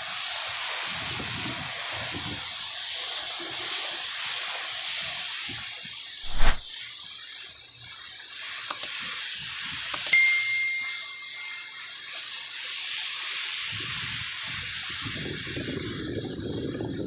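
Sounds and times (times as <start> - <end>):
steady hiss: 0.0 - 17.0
clicks: 10.0 - 11.8
bright bell ding: 10.0 - 12.2.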